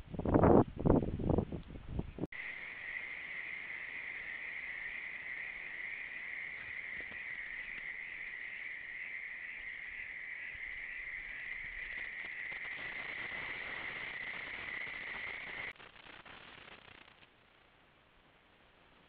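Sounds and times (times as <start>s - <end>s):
crickets chirping: 2.3s - 17.1s.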